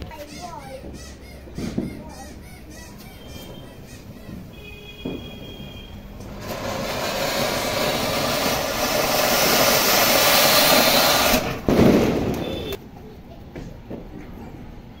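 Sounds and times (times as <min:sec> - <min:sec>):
firework fountain hissing: 0:03.3 - 0:12.8.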